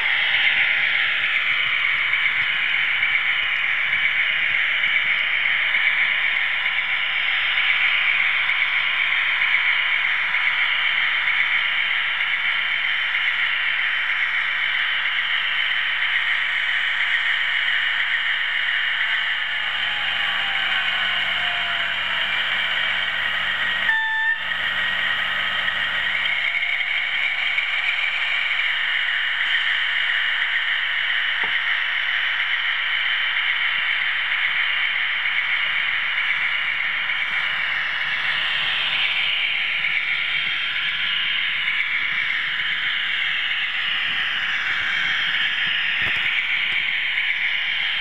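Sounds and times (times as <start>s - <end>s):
model train motor whirring: 0.0s - 48.0s
short whistle toot: 23.8s - 24.5s.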